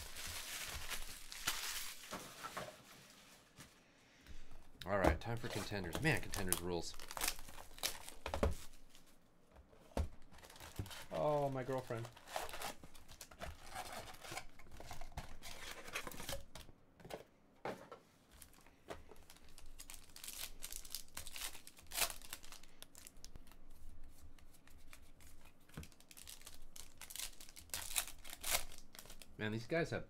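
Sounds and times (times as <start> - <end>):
foil wrappers crinkling and tearing: 0.0 - 3.6, 5.2 - 9.0, 10.4 - 16.6, 18.4 - 23.6, 25.8 - 29.3.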